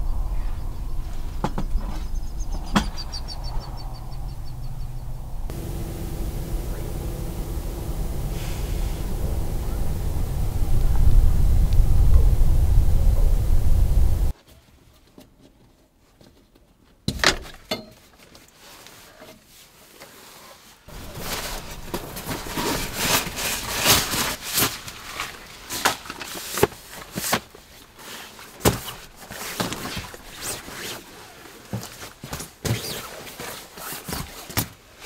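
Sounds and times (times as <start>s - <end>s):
bedding rustling: 20.9s - 34.5s.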